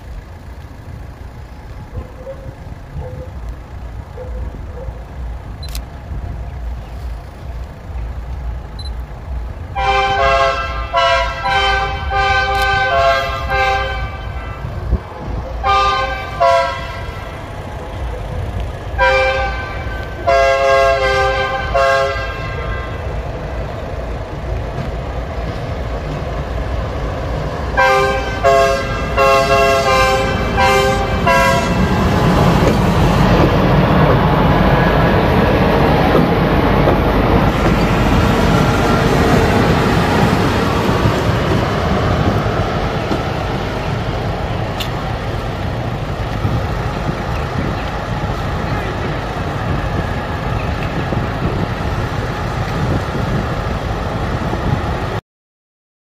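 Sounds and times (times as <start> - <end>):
locomotive rumble: 0.0 - 55.2
locomotive horn blasts: 9.7 - 17.6, 19.0 - 23.2, 27.8 - 32.2.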